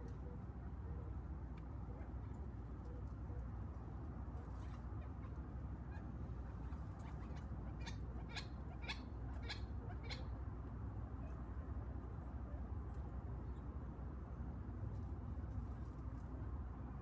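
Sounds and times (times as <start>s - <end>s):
quail calling: 4.6s - 10.4s.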